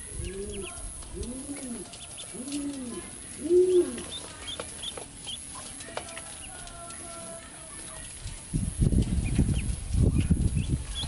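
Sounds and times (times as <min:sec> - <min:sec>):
ducklings peeping: 0:00.0 - 0:11.0
bird cooing calls: 0:00.1 - 0:04.1.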